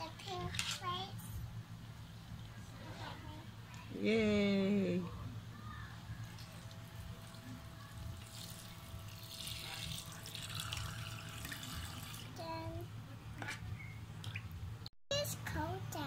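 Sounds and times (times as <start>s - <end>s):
water trickling into plastic basin: 8.1s - 12.3s.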